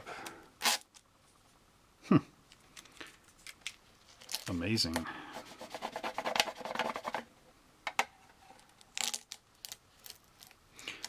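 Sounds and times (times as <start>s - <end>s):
tape peeling off plastic: 0.6s - 1.0s, 8.7s - 10.6s.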